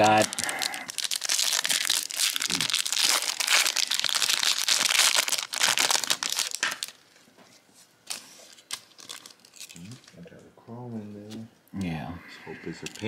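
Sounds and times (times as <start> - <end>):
foil wrapper crinkling and tearing: 0.0 - 7.0, 8.1 - 10.1.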